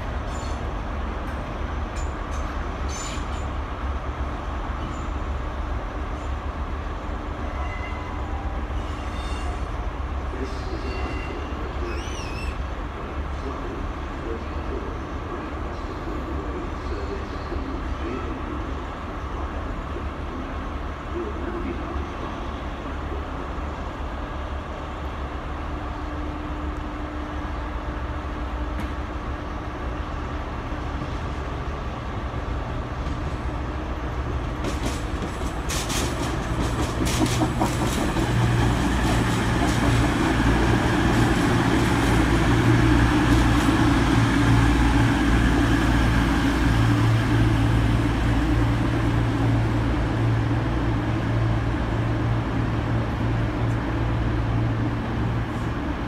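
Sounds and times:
train diesel engines humming: 0:00.0 - 0:56.0
train wheels clacking: 0:34.5 - 0:42.6.

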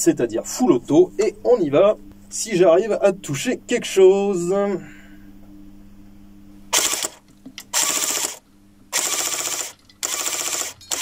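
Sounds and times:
airsoft gun firing bursts: 0:06.8 - 0:11.0.

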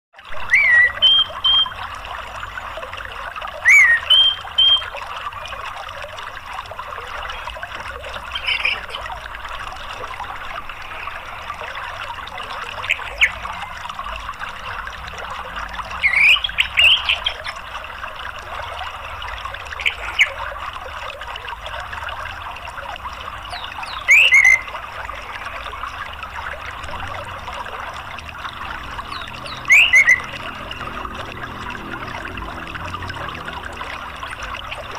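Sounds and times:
running water: 0:00.2 - 0:34.9
thrush calling: 0:00.4 - 0:01.8, 0:03.6 - 0:05.0, 0:08.2 - 0:09.2, 0:16.0 - 0:17.6, 0:23.6 - 0:25.6, 0:28.7 - 0:31.4.

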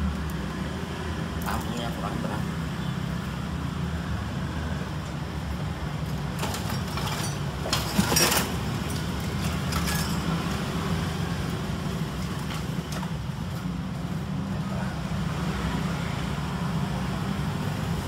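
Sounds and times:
tools clicking and scraping: 0:06.3 - 0:10.6.

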